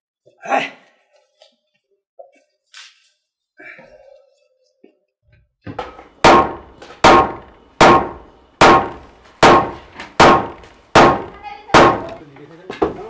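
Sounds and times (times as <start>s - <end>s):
hammer blows ringing: 6.2s - 12.2s.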